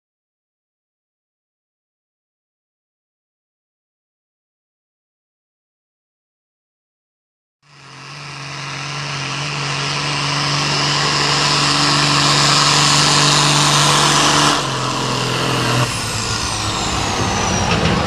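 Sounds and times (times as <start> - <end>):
tractor diesel engine under load: 7.7 - 18.0.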